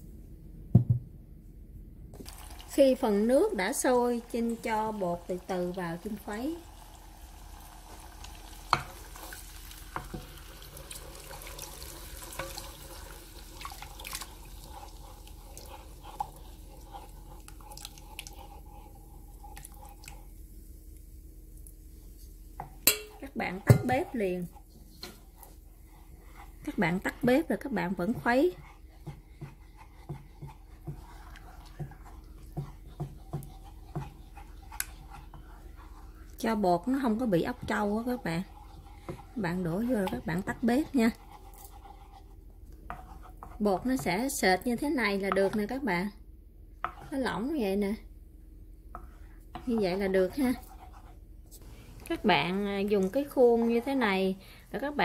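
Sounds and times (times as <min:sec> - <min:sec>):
wooden spoon stirring thick paste: 0:02.2 - 0:21.0, 0:21.9 - 0:55.0
spoon tapping on pot: 0:22.6 - 0:24.0.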